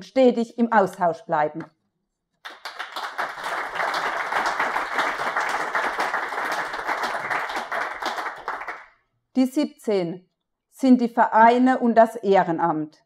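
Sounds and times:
audience applauding: 0:02.4 - 0:08.9.

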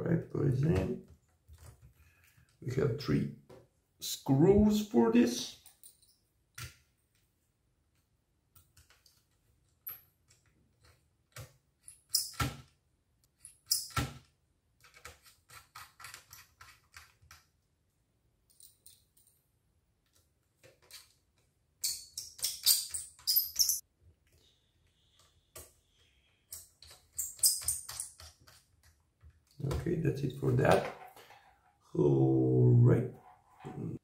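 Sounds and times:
small clicks and taps of screws: 0:26.5 - 0:29.6.

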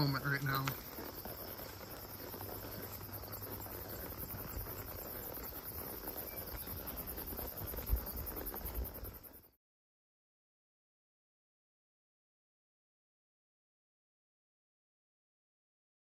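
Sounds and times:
crickets chirping: 0:00.0 - 0:09.6.

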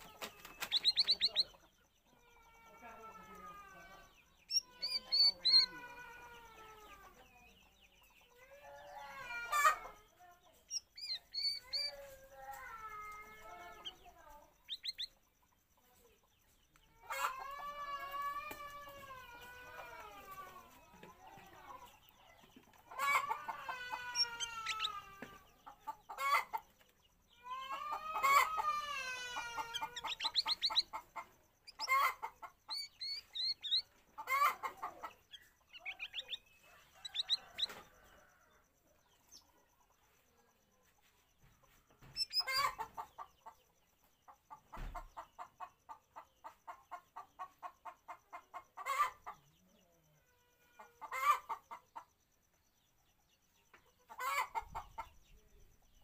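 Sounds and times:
bulbul calling: 0:00.0 - 0:01.6, 0:03.3 - 0:05.8, 0:10.6 - 0:12.6, 0:13.3 - 0:15.4, 0:20.9 - 0:26.6, 0:28.0 - 0:37.9, 0:42.0 - 0:42.9.

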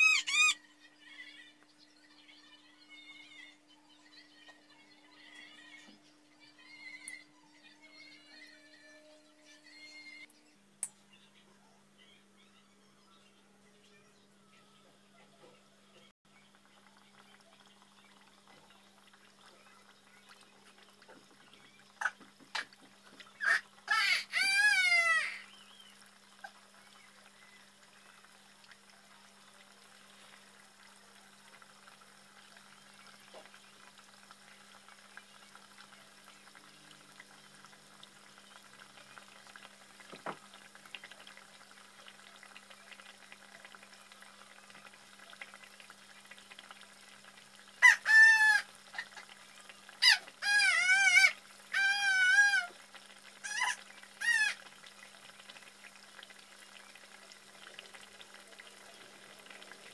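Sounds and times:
high wavering cries: 0:00.0 - 0:01.5, 0:23.4 - 0:25.5
deep-frying oil bubbling hiss: 0:16.3 - 0:59.9.

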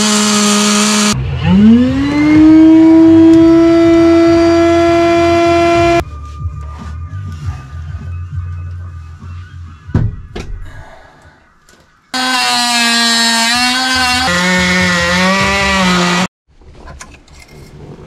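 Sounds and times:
power tool buzzing: 0:00.0 - 0:06.0, 0:12.2 - 0:16.3.

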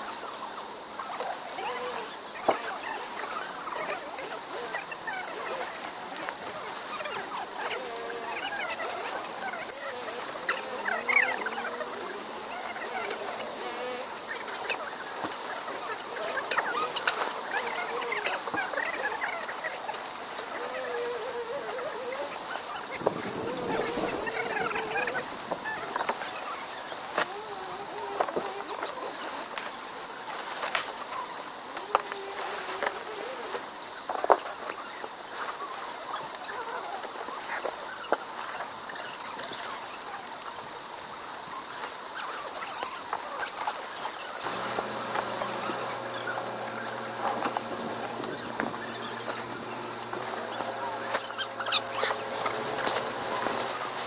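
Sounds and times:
steady high hiss: 0:00.0 - 0:54.0
faint wavering calls: 0:00.9 - 0:29.4, 0:44.4 - 0:54.0
tent fabric rustling: 0:44.4 - 0:54.0.

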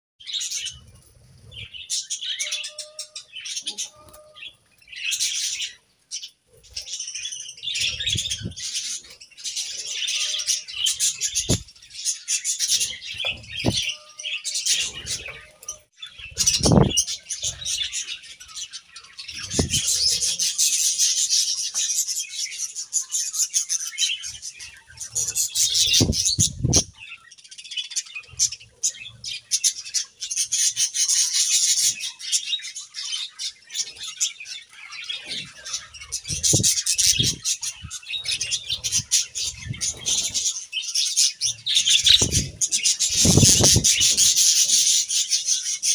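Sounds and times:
budgerigars chattering and chirping: 0:01.5 - 0:45.9
wings flapping: 0:41.9 - 0:44.4.

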